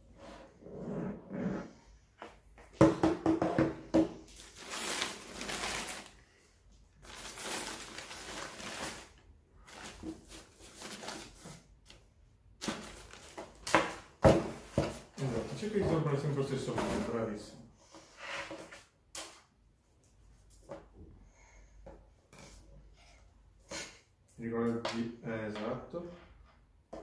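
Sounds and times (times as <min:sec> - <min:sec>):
tissue paper rustling: 0:04.3 - 0:06.2, 0:06.9 - 0:11.7, 0:12.6 - 0:13.7.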